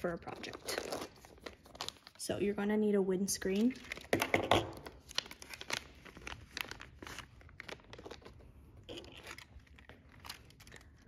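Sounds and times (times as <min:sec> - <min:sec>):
plastic bag crinkling: 0:03.6 - 0:11.0.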